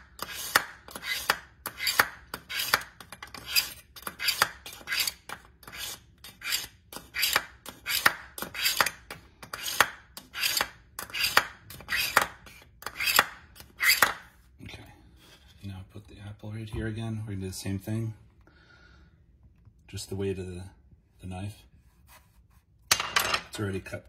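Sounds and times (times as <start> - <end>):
knife rasping through sharpener: 0.2 - 8.9, 9.5 - 14.1.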